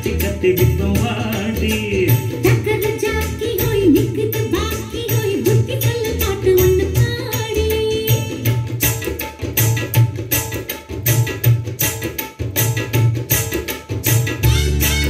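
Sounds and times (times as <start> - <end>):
hand-drum rhythm: 0.0 - 15.0.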